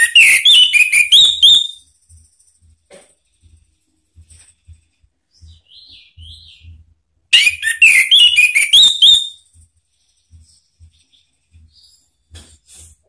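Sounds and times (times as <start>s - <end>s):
thrush singing whistled notes: 0.0s - 1.8s, 7.3s - 9.5s.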